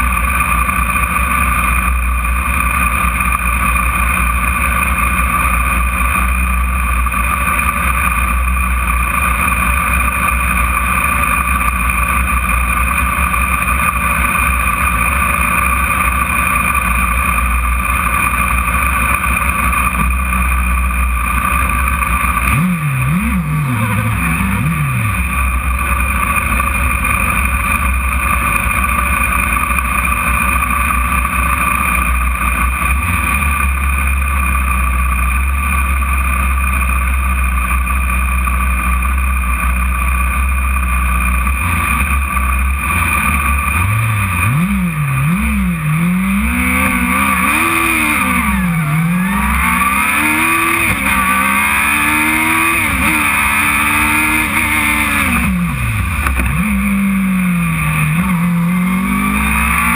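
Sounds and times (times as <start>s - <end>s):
racing car engine revving: 0.0s - 37.0s, 40.7s - 59.9s.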